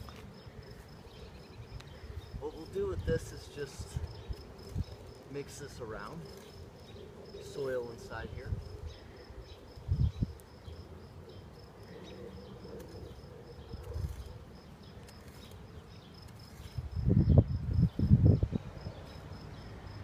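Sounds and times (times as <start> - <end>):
insect chirping: 0.0 - 20.0
hoe scraping soil: 13.8 - 16.8.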